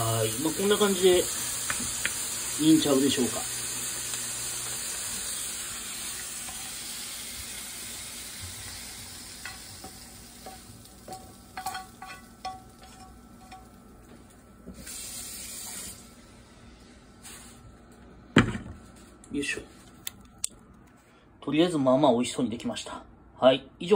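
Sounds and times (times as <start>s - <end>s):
stir-fry sizzling in pan: 0.0s - 16.3s
hiss: 14.8s - 16.1s.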